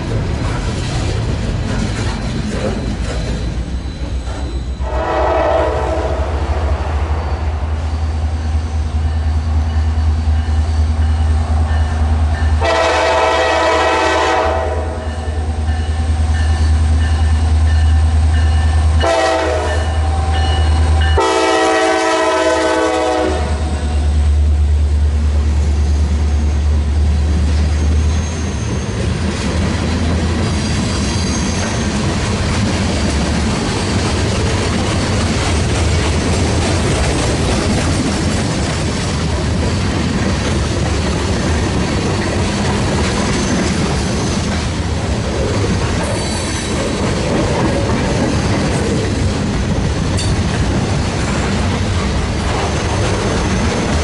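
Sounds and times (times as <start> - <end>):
diesel locomotive rumbling: 0.0 - 54.0
multi-chime air horn blasts: 4.8 - 6.4, 19.0 - 23.5.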